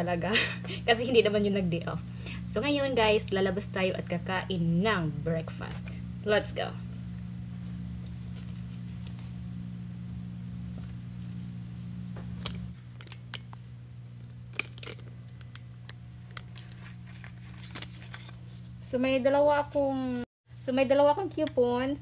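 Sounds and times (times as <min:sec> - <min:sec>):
steady low hum: 0:00.0 - 0:22.0
face mask rustling: 0:07.2 - 0:09.7.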